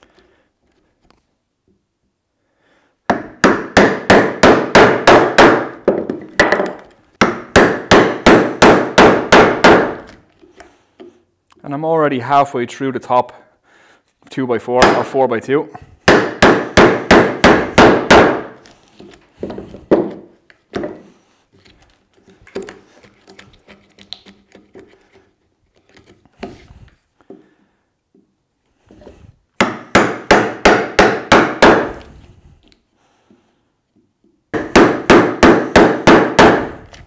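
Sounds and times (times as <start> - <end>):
mallet striking chisel: 16.0 - 18.5, 29.6 - 32.0
chisel scraping wood: 20.9 - 26.8.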